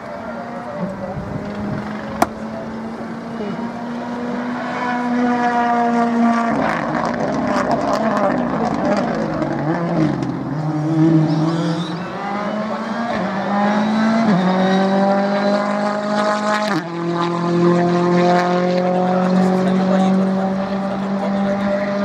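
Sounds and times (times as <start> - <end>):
rally car engine revving: 0.2 - 22.0.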